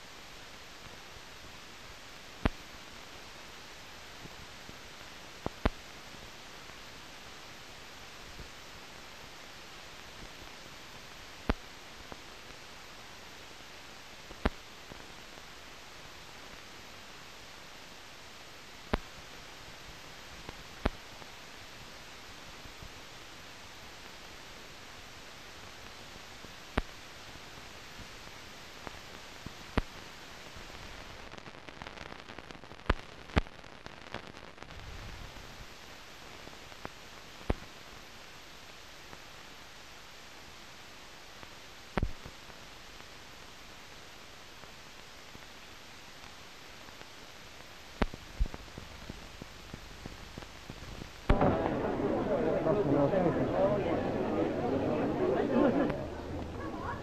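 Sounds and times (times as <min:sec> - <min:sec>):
film soundtrack hiss: 0:00.0 - 0:57.0
sharp clicks and pops: 0:18.8 - 0:19.2, 0:20.4 - 0:21.2, 0:26.7 - 0:27.0, 0:28.8 - 0:30.0, 0:30.7 - 0:34.9, 0:36.7 - 0:37.7, 0:41.9 - 0:42.4, 0:47.0 - 0:52.0.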